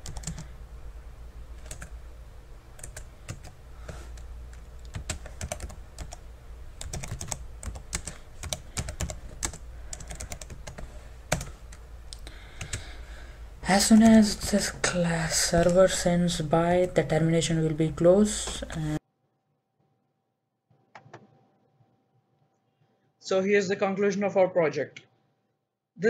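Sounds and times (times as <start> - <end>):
low steady hum: 0.0 - 19.0
keyboard typing clicks: 1.6 - 1.9, 4.2 - 6.2, 6.8 - 11.8.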